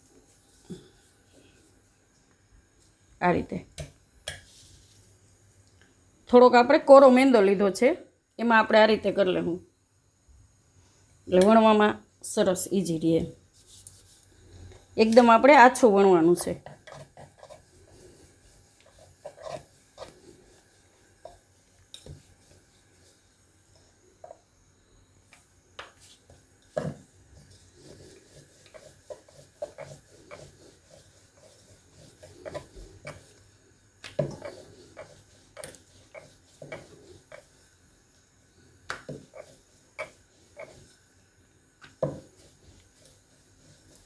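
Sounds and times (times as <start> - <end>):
rolling pin rolling dough: 11.3 - 24.6, 25.2 - 44.0.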